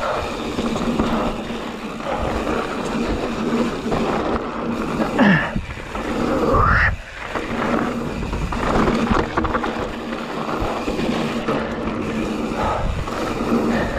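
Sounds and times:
wind on microphone: 12.5 - 13.9.

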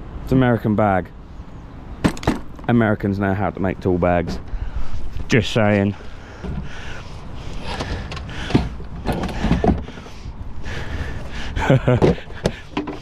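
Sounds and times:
tool set down in plastic case: 2.0 - 2.5.

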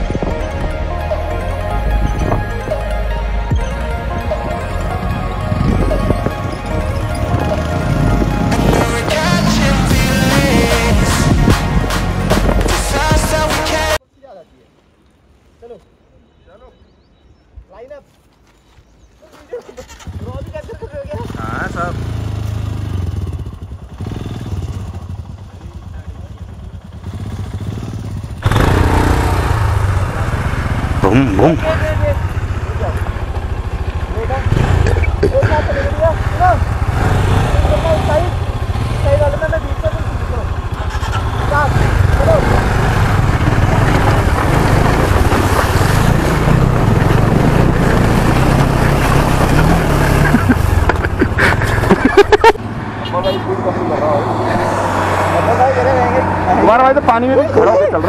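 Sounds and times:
loud rough noise: 5.4 - 14.0, 26.4 - 53.0
motorcycle engine at low revs: 19.8 - 52.6.

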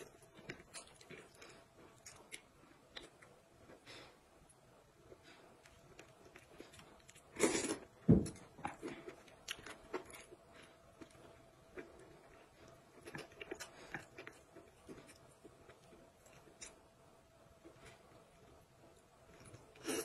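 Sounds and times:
chewing: 0.0 - 4.0, 5.1 - 16.9.

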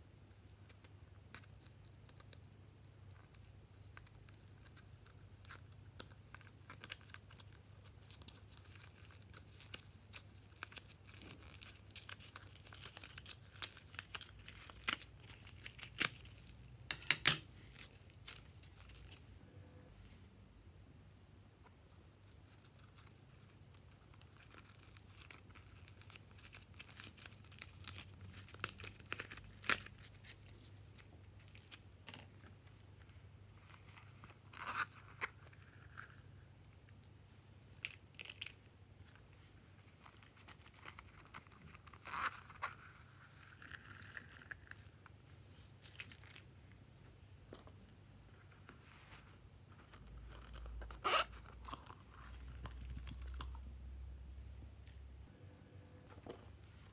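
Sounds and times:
crinkles: 0.7 - 19.2, 22.2 - 47.7, 48.3 - 53.7
plastic pouch zipper scraping: 50.9 - 51.8.

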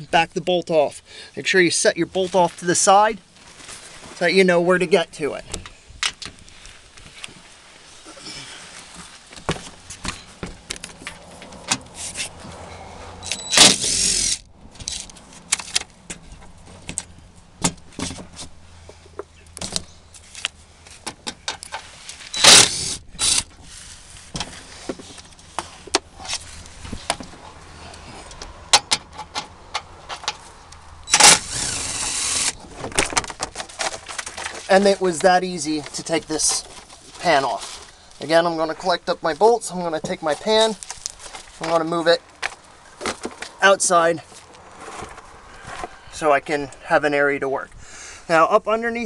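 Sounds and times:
impact driver running: 13.3 - 14.4, 22.4 - 23.5, 31.1 - 32.6.

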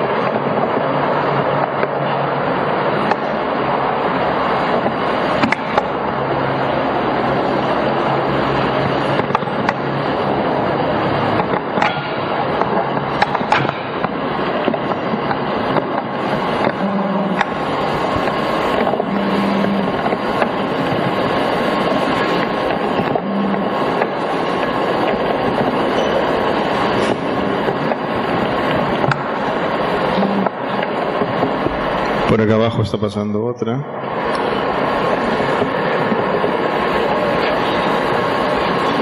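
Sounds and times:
steady rushing noise: 0.0 - 39.0
short low hums: 3.2 - 32.4.

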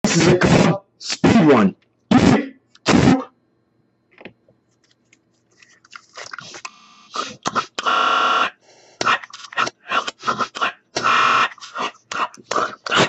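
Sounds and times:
steady buzzing tone: 6.7 - 9.2, 10.9 - 11.7.

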